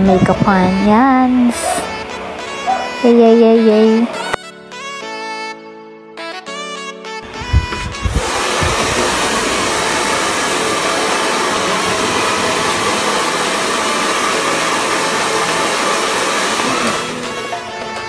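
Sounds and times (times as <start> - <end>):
hair dryer blowing: 7.2 - 18.0.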